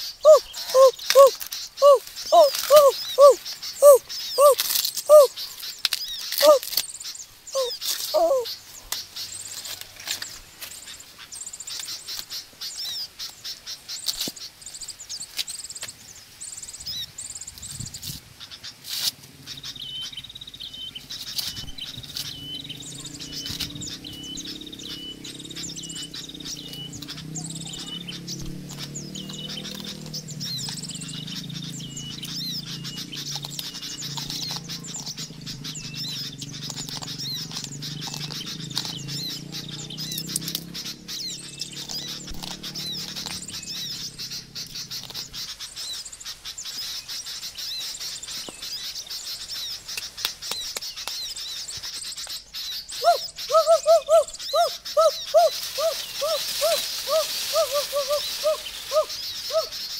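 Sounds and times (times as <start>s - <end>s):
birds chirping: 0.0s - 59.9s
bird repeating high call: 0.2s - 5.4s, 6.4s - 6.7s, 7.6s - 8.6s
corn husk tearing: 4.4s - 5.2s, 55.4s - 59.2s.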